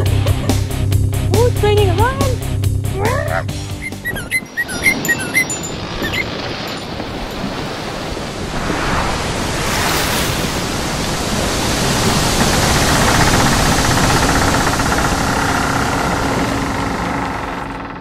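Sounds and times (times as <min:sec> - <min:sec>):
ocean waves breaking: 0:03.8 - 0:18.0.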